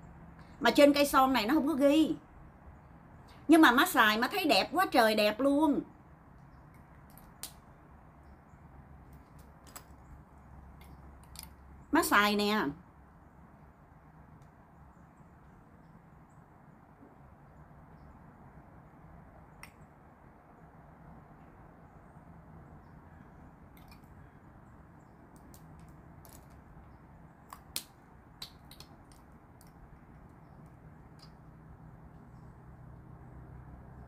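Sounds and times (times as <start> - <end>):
faint background hum: 0.0 - 34.0
small sharp clicks: 6.7 - 7.7, 9.1 - 10.1, 10.7 - 11.7, 19.5 - 20.0, 25.2 - 31.5.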